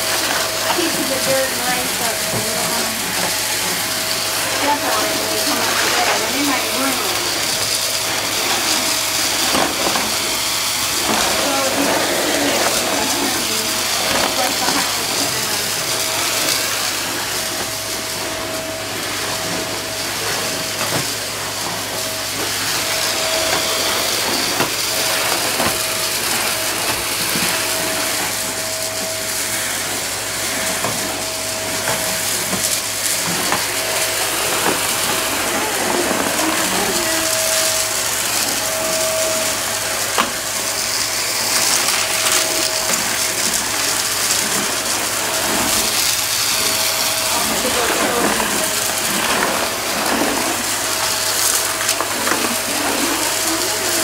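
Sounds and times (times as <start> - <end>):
vacuum cleaner motor whine: 0.0 - 54.0.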